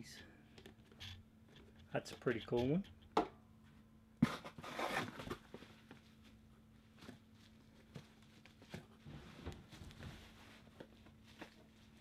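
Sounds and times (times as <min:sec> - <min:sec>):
cardboard rustling and scraping: 0:04.2 - 0:12.0.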